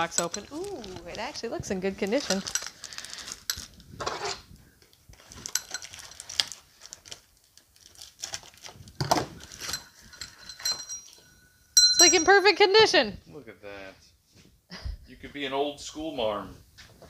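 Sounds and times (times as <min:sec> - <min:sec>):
wrapping crinkling and rustling: 0:00.0 - 0:10.4
faint metallic ring: 0:09.6 - 0:12.4.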